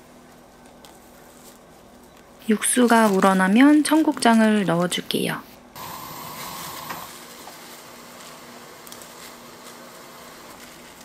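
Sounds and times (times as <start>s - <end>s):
broth boiling and bubbling: 5.8s - 8.8s.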